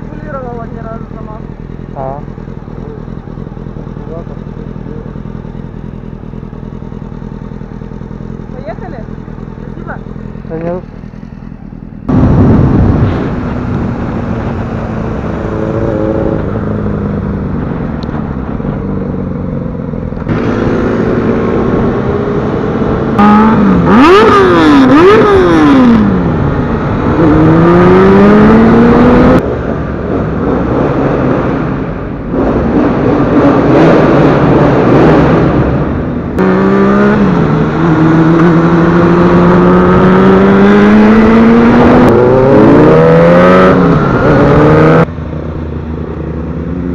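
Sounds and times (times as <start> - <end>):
motorcycle engine accelerating: 0.0 - 46.9
wind rushing over microphone: 12.1 - 19.0.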